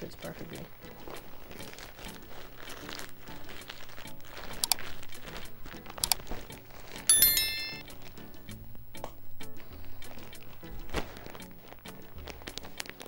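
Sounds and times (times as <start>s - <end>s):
plastic bag crinkling: 1.2s - 7.0s, 10.9s - 13.0s.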